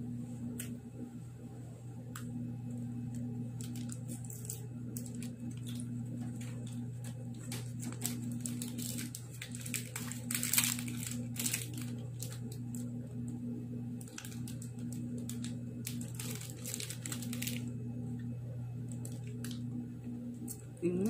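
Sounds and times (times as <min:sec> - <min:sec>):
steady low hum: 0:00.0 - 0:21.0
wrappers crinkling and tearing: 0:03.6 - 0:12.9, 0:14.0 - 0:17.7, 0:18.9 - 0:19.6.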